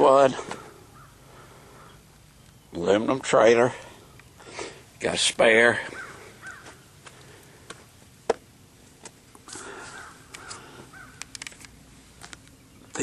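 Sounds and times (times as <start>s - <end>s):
faint bird cawing: 0.3s - 2.8s, 5.7s - 7.7s, 9.4s - 11.4s
camera handling clicks: 10.3s - 10.6s, 11.2s - 12.6s.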